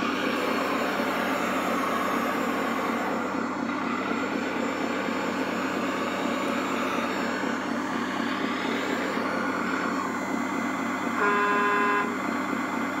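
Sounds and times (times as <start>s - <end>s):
diesel engine running: 0.0s - 13.0s
horn toot: 11.2s - 12.1s.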